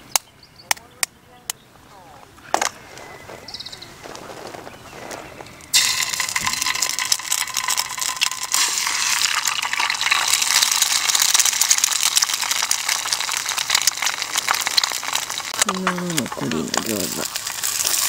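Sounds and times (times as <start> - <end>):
egg cracking: 5.7 - 18.0
hot oil sizzling: 5.7 - 18.0.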